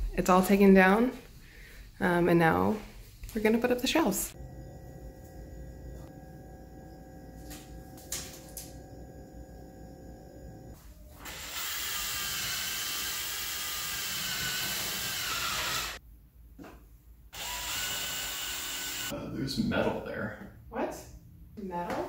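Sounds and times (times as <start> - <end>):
power drill boring into wall: 11.2 - 16.0, 17.4 - 19.1.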